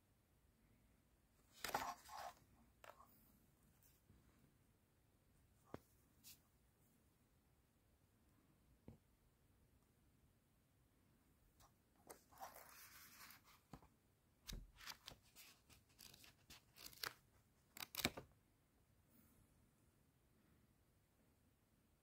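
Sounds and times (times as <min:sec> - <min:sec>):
paper pages rustling and flicking: 0:01.5 - 0:03.0, 0:12.1 - 0:13.9, 0:14.5 - 0:18.2.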